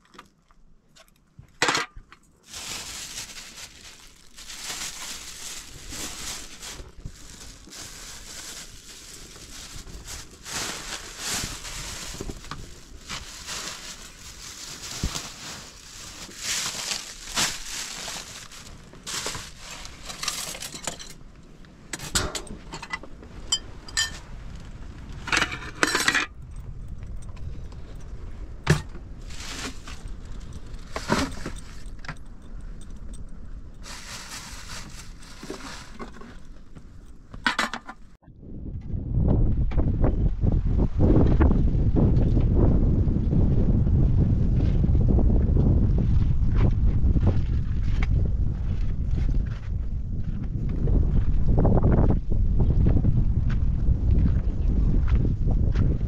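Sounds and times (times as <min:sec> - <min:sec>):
kitchenware scraping and rustling: 0:14.8 - 0:21.2, 0:22.0 - 0:24.3, 0:25.2 - 0:26.4, 0:28.8 - 0:32.1, 0:33.9 - 0:38.2
kitchenware clinking: 0:22.0 - 0:24.2.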